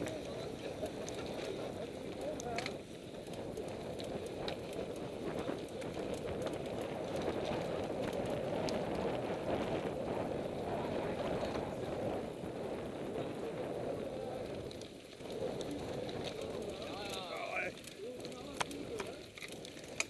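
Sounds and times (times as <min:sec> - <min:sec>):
bike clicks and rattles: 0:00.0 - 0:20.0
tyres rolling over sandy ground: 0:00.0 - 0:20.0
wind: 0:00.0 - 0:20.0.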